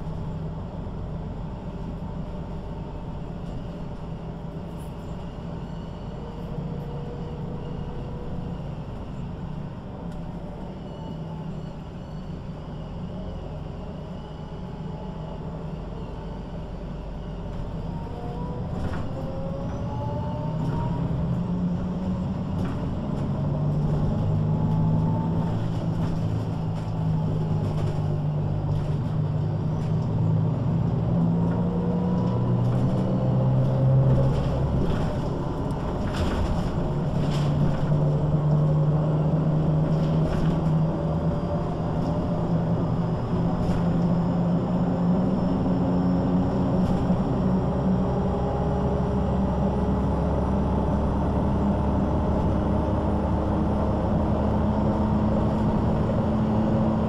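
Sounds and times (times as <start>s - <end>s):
bus body rattling: 0.0s - 57.0s
bus diesel engine accelerating: 0.0s - 57.0s.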